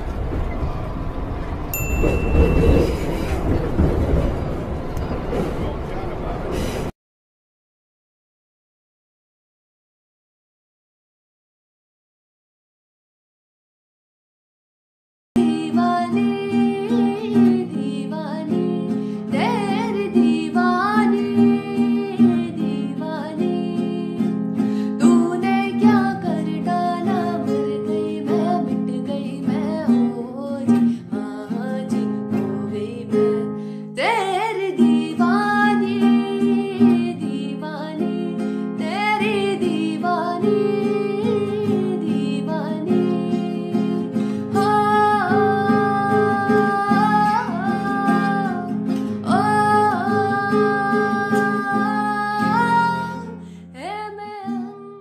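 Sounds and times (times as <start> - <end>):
song with guitar and singing: 15.4 - 55.0.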